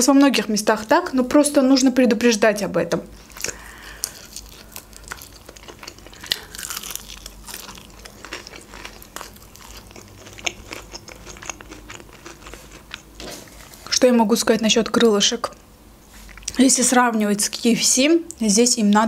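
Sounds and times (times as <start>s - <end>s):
crunchy chewing of fried chicken: 3.2s - 13.9s.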